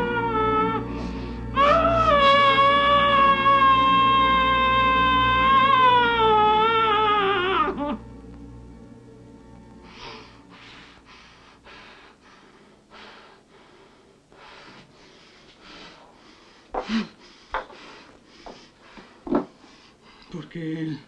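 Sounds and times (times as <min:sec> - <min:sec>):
woman sobbing: 0:01.6 - 0:08.0.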